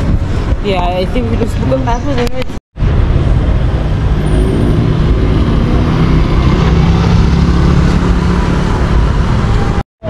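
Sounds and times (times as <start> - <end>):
road traffic: 0.0 - 9.9
vehicle engine low drone: 2.8 - 9.8.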